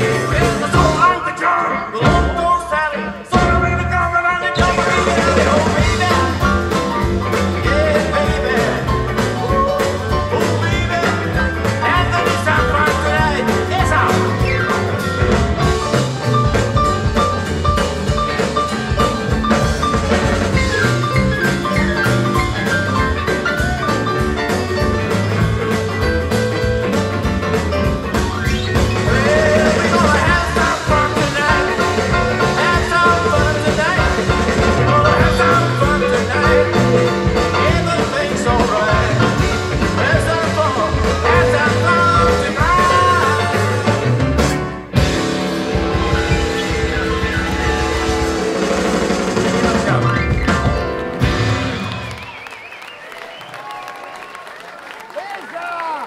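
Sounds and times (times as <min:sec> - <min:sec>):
person singing: 0:00.0 - 0:16.0, 0:28.8 - 0:44.2
rock band playing: 0:00.0 - 0:54.6.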